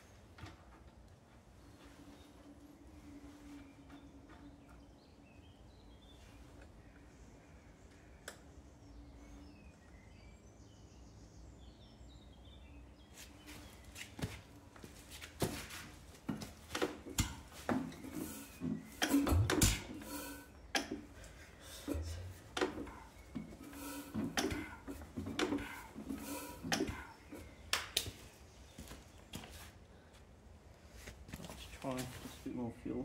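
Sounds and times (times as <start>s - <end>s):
engine metallic clicks and clunks: 19.0s - 21.1s.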